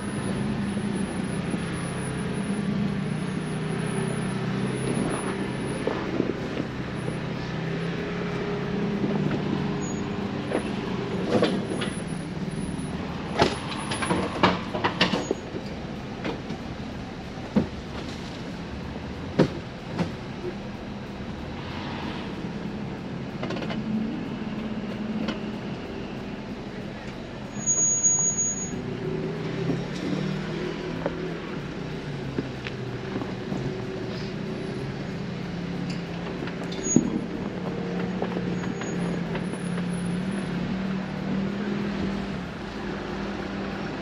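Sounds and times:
sharp knocks and clunks: 19.3s - 20.2s
car engine running at low speed: 28.6s - 44.0s.

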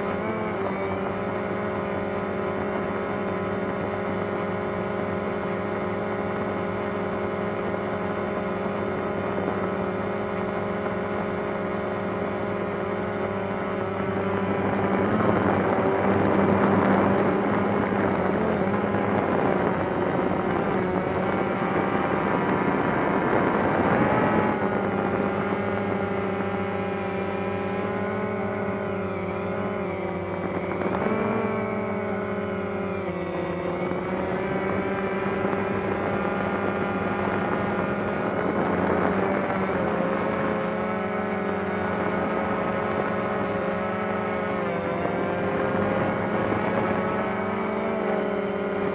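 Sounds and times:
drone propellers whining: 0.0s - 48.9s.

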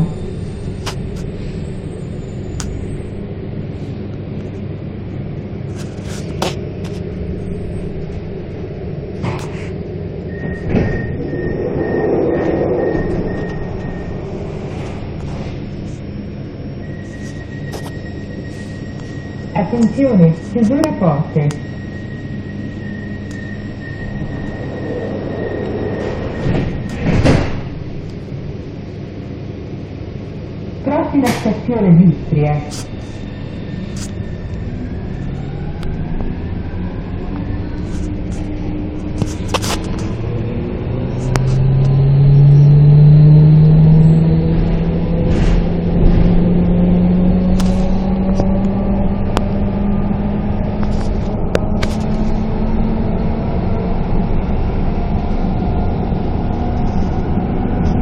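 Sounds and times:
train rumble and hum: 0.0s - 58.0s
sliding doors closing: 9.1s - 16.0s, 23.0s - 28.4s, 44.6s - 46.6s
closing announcement: 19.6s - 21.6s, 30.8s - 32.9s.

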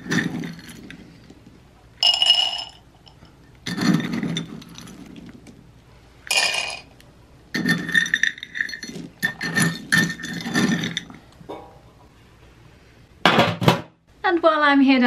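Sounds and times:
dry kibble rattling into bowls: 0.0s - 1.4s, 2.0s - 5.6s, 6.3s - 11.3s.

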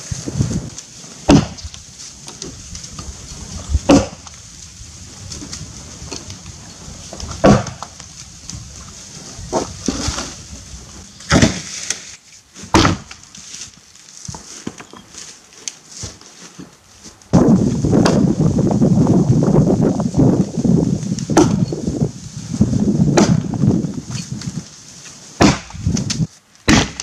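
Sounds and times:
axe chopping wood: 1.3s - 1.7s, 3.9s - 4.3s, 7.4s - 7.9s, 11.3s - 11.7s, 12.7s - 13.2s, 21.3s - 21.6s, 23.1s - 23.6s, 25.4s - 27.0s.

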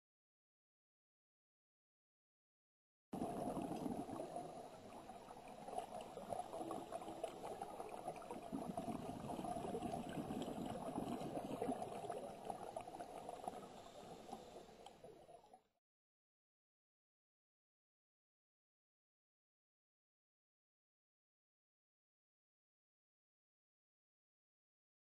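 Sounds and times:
fine underwater crackling: 3.2s - 15.6s
underwater bubbles gurgling: 3.2s - 15.6s.

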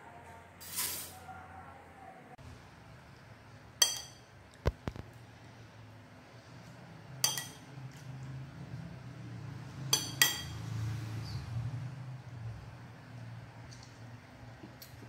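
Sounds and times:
metal spoon clinking on glass bowl: 3.8s - 4.3s, 7.2s - 7.7s, 9.9s - 10.6s.

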